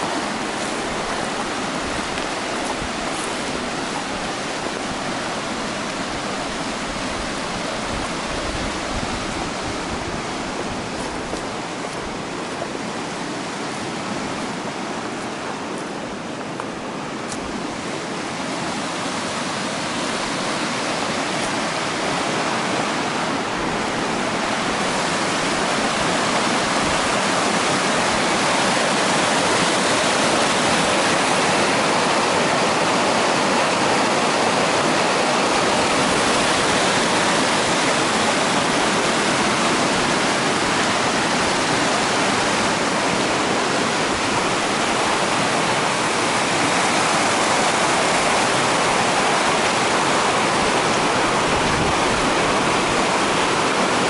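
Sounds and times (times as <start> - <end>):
rushing water: 0.0 - 54.0.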